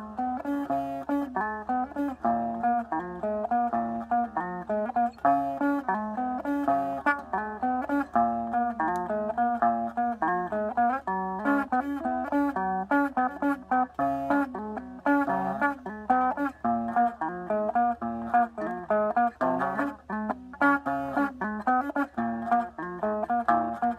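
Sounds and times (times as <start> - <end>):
electric guitar single notes: 0.0 - 23.9.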